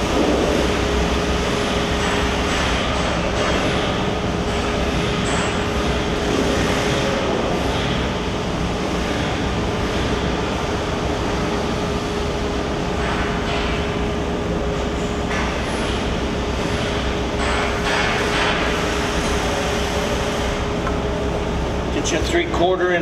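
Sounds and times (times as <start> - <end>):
machinery drone with hum: 0.0 - 23.0.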